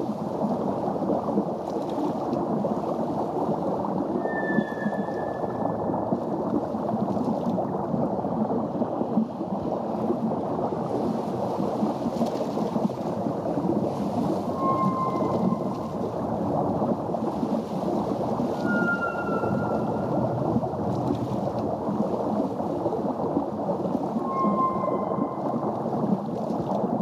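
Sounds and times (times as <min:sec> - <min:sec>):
low underwater rushing noise: 0:00.0 - 0:27.0
high whale-like tonal calls: 0:04.2 - 0:05.9, 0:14.6 - 0:16.0, 0:18.4 - 0:20.4, 0:24.2 - 0:25.8.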